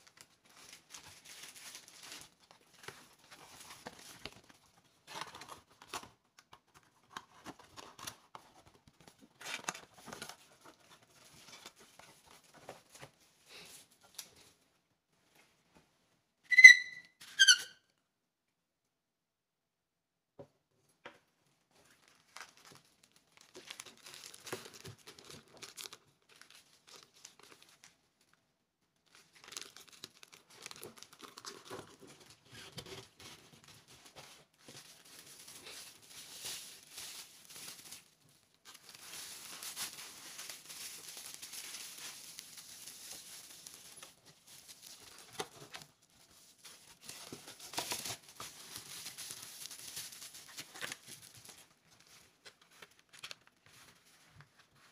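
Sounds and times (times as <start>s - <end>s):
bubble wrap crinkling: 0.0s - 6.1s, 21.8s - 28.4s, 29.0s - 54.9s.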